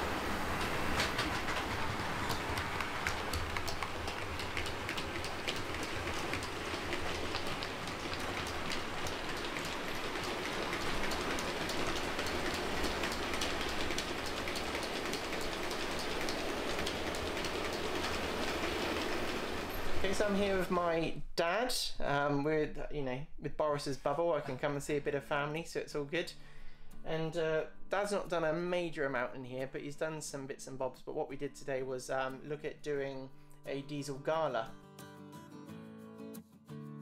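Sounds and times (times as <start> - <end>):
model train wheels rolling: 0.0 - 20.8
clicks over rail joints: 0.1 - 20.7.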